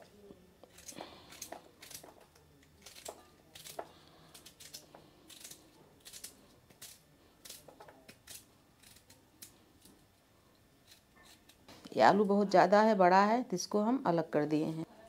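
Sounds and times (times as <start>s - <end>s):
knife cutting potato: 0.6s - 10.0s.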